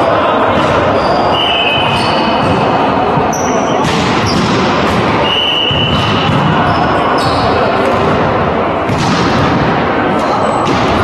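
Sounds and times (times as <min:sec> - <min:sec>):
players' voices: 0:00.0 - 0:11.0
volleyball hits: 0:00.4 - 0:11.0
shoe squeaks on gym floor: 0:00.9 - 0:02.4, 0:03.3 - 0:04.4, 0:06.6 - 0:07.7.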